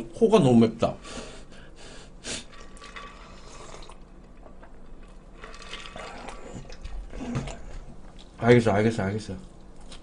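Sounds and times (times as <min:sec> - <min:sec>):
man drinking and swallowing: 0:02.4 - 0:08.4.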